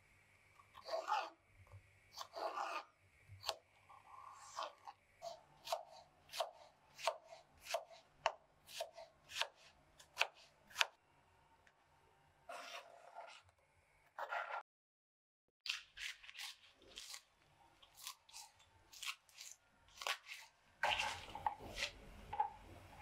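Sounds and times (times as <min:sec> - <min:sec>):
knife chopping celery on cutting board: 0:02.1 - 0:02.8, 0:03.4 - 0:03.6, 0:04.4 - 0:11.0, 0:15.7 - 0:17.3, 0:17.9 - 0:22.5.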